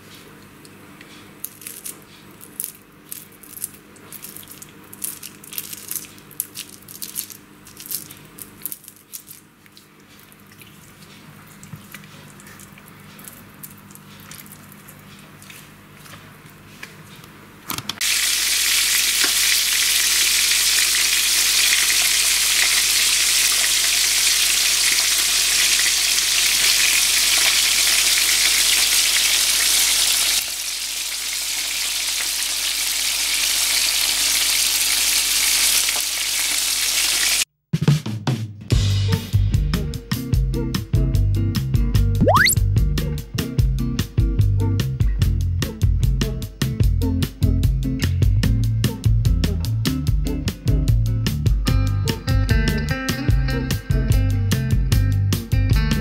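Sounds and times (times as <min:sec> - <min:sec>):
fish sizzling in oil: 0:18.0 - 0:37.5.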